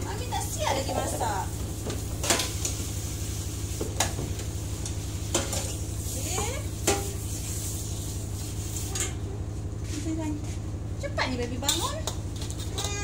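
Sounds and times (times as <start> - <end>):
chili paste sizzling in wok: 0.0 - 9.3
steady low hum: 0.0 - 13.0.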